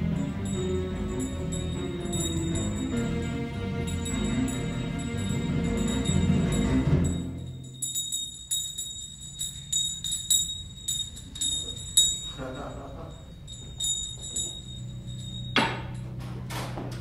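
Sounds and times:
small bell ringing: 0:00.0 - 0:16.1.

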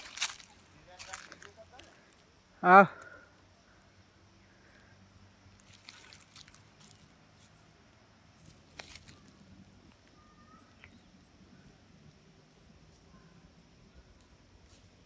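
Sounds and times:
footsteps crunching on dry brush: 0:00.0 - 0:02.0, 0:05.6 - 0:07.6, 0:08.4 - 0:09.4.

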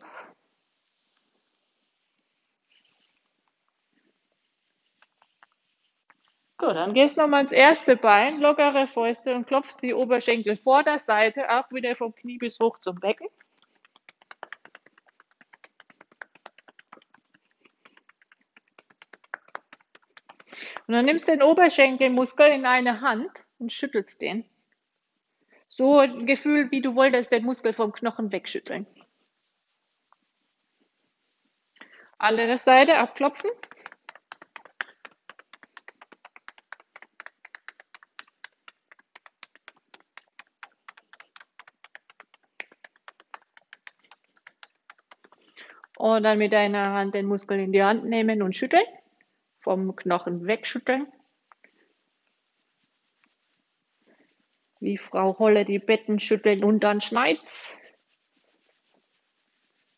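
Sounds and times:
fists tapping on a thigh: 0:12.2 - 0:21.4, 0:33.3 - 0:46.0.

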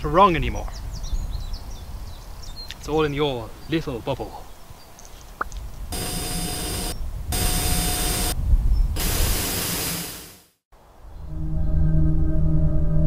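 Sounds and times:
faint steady whine: 0:05.9 - 0:08.4
tv static hiss: 0:06.0 - 0:08.4, 0:09.0 - 0:10.5
low ambient music tones: 0:11.1 - 0:13.0.

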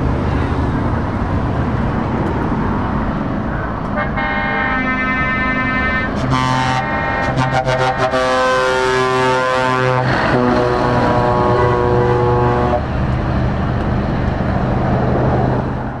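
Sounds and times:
truck engine running: 0:00.0 - 0:16.0
truck air horns blasting: 0:04.0 - 0:12.9.

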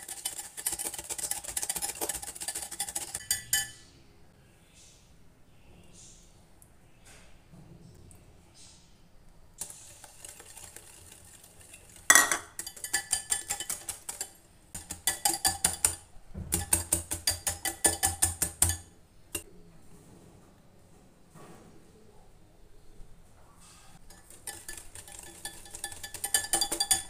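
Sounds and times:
whisk clinking in glass bowl: 0:00.0 - 0:03.8, 0:09.6 - 0:18.9, 0:24.1 - 0:27.0.

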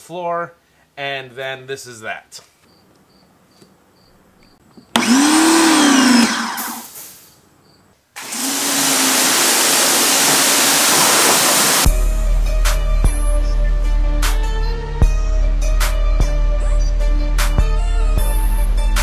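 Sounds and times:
electric motor whine: 0:05.0 - 0:06.9, 0:08.2 - 0:11.8
water jet hissing: 0:08.2 - 0:11.9.

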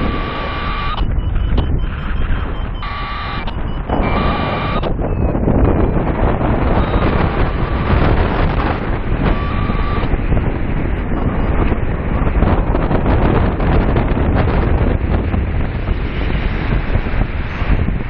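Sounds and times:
high electronic beeping: 0:00.0 - 0:12.3
wind rushing over microphone: 0:00.0 - 0:18.0.

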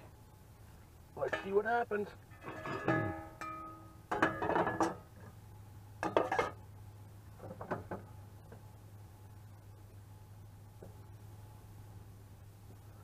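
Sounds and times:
steady low hum: 0:00.0 - 0:13.0
metal jug and spoon clinking: 0:02.4 - 0:05.0.

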